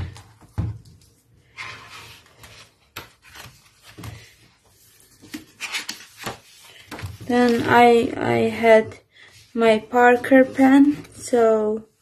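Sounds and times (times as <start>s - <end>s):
paper pages rustling: 1.0s - 8.0s.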